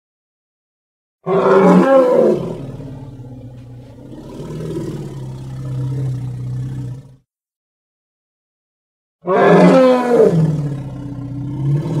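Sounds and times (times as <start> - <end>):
elephant roaring: 1.2 - 7.2, 9.2 - 12.0.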